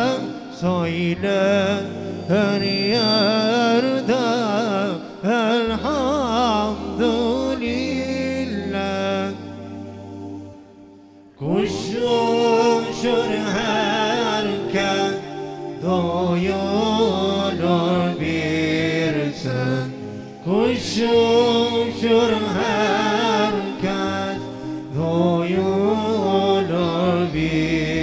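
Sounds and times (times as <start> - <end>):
man singing a hymn: 0.0 - 9.7, 11.4 - 28.0.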